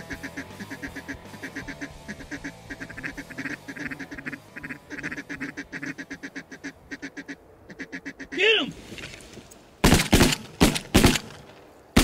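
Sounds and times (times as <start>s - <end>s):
ducks quacking: 0.0s - 8.4s.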